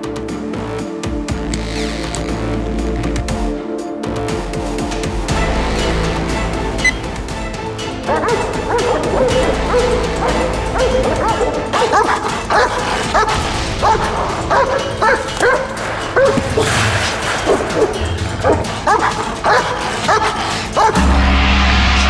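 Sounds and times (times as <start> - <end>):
music: 0.0 - 22.0
large dog barking: 8.1 - 21.0.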